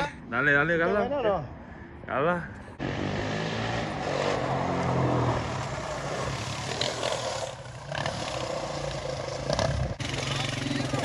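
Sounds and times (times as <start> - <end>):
motorcycle engine running: 5.8 - 11.0.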